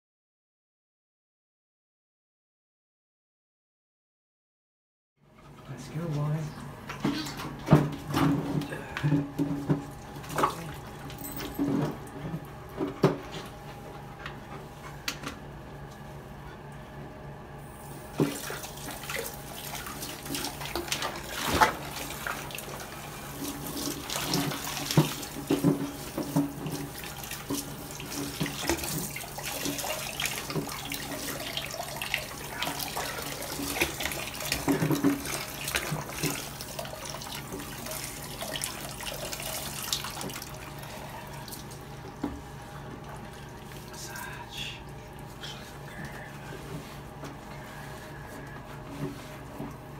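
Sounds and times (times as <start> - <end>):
shower spraying water: 17.6 - 41.8.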